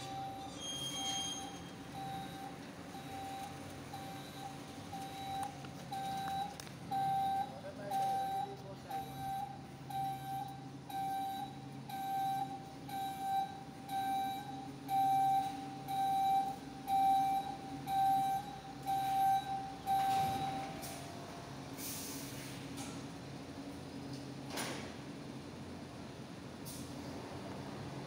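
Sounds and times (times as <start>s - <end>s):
reversing alarm beeping: 0.0s - 21.1s
truck engine running: 0.0s - 28.0s.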